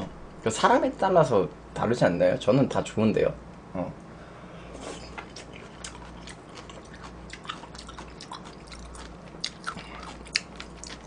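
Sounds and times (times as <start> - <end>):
person chewing wetly: 5.0 - 11.0.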